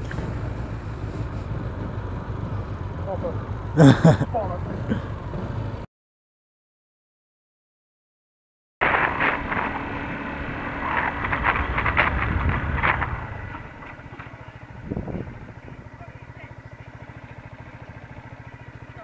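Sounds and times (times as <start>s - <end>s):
motorcycle engine: 0.0s - 5.9s, 8.8s - 19.0s
wind buffeting on microphone: 8.8s - 13.8s, 14.7s - 15.9s.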